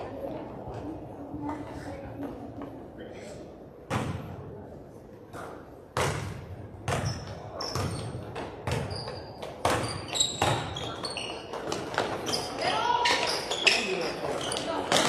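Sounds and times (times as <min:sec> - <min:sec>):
basketball bouncing on gym floor: 0:03.9 - 0:04.4, 0:05.9 - 0:12.4
sneakers squeaking on court: 0:06.0 - 0:15.0.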